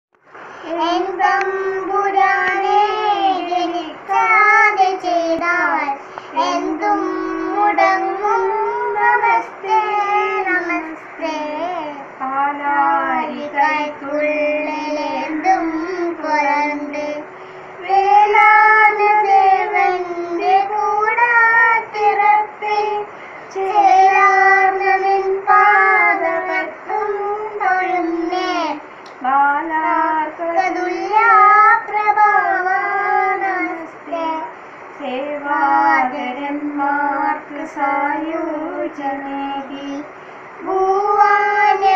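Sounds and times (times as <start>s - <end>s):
girl chanting a prayer: 17.8s - 28.9s.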